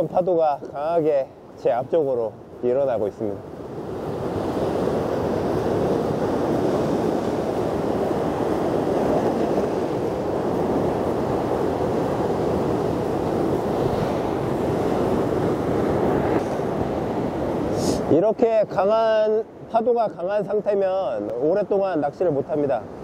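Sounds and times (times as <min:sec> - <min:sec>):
surf breaking over rocks: 0:03.9 - 0:18.2.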